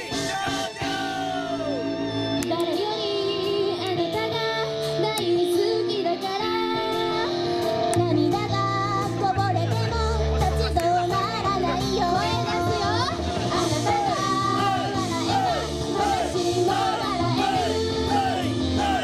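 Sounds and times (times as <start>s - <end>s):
upbeat backing track with drums: 7.6s - 19.0s
female voices singing pop: 13.6s - 19.0s.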